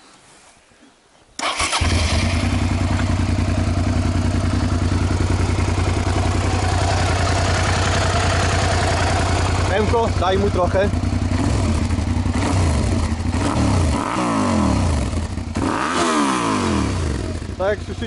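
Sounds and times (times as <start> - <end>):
motorcycle engine starting and idling: 1.4 - 18.0.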